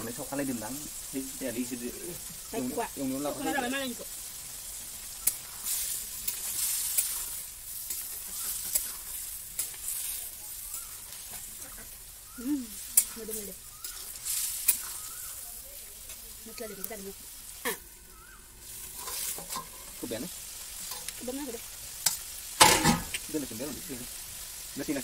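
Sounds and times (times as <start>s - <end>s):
food sizzling in a pan: 0.0s - 25.0s
metal spatula scraping pan: 18.6s - 20.1s, 20.8s - 21.2s, 22.1s - 23.2s.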